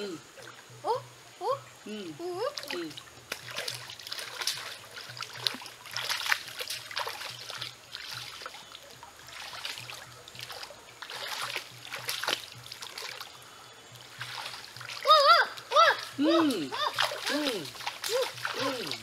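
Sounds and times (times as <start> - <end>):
stream trickling: 0.0 - 19.0
feet splashing in water: 2.6 - 19.0.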